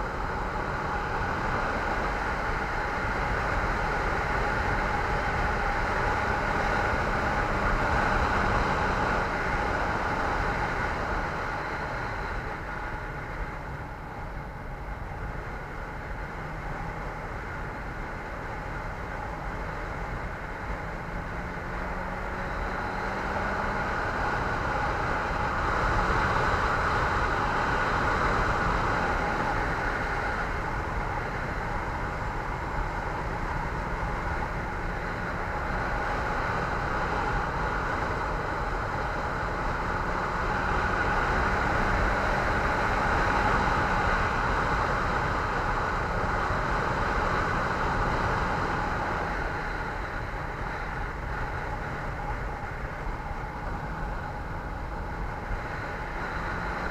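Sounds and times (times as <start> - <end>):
road and wind noise: 0.0 - 56.9.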